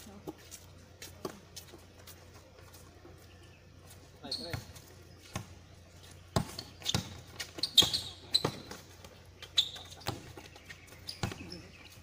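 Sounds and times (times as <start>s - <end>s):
basketball bouncing on concrete: 4.4s - 5.6s, 6.3s - 11.7s
short high squeaks: 6.5s - 10.2s.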